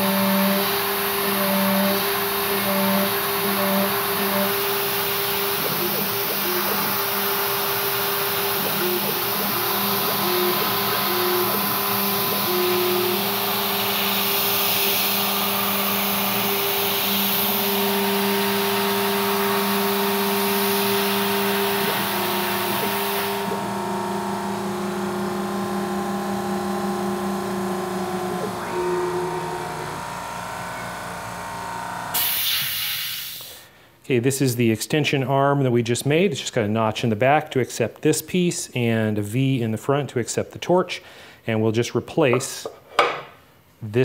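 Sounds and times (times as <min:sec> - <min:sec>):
milling machine humming: 0:00.0 - 0:32.2
compressed air hissing: 0:02.7 - 0:15.3, 0:32.2 - 0:33.8.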